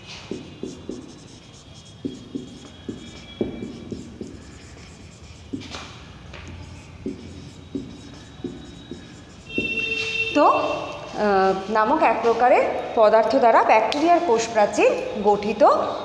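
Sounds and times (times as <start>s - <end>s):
marker pen writing on whiteboard: 0.0s - 11.0s.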